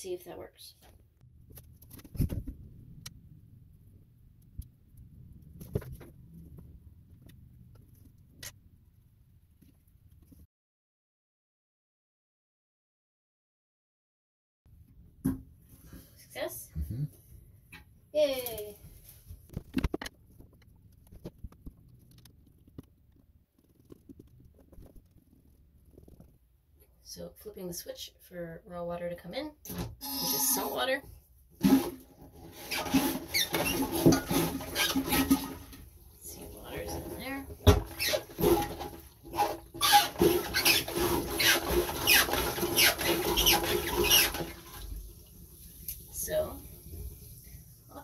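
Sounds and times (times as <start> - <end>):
toilet hand pump strokes: 29.7 - 30.9, 31.6 - 45.0.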